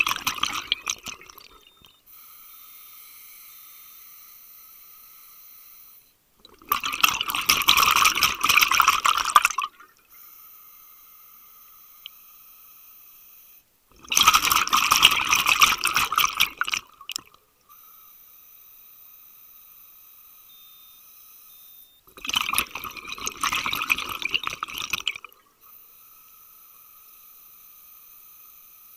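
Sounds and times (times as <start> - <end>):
exhaled bubbles rushing underwater: 0.0 - 1.8, 6.4 - 9.9, 14.0 - 17.3, 22.1 - 25.4
faint steady hum: 0.0 - 28.9.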